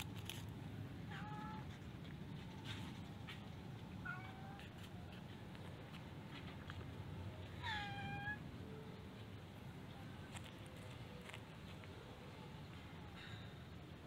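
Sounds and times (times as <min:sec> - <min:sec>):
cat meowing: 0:01.1 - 0:01.7, 0:04.0 - 0:04.7, 0:07.6 - 0:08.4.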